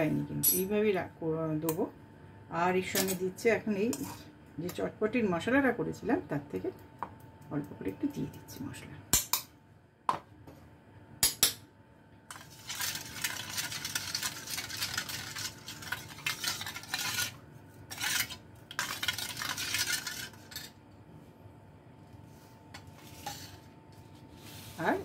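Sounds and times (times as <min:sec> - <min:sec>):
spoon scraping stir: 0:12.3 - 0:20.8, 0:22.3 - 0:25.0.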